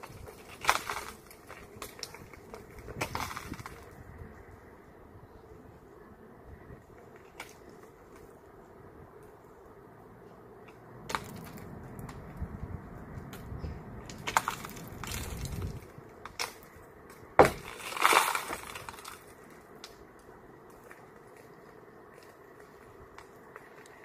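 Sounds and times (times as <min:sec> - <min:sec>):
glass cracking and breaking: 0:17.4 - 0:19.2.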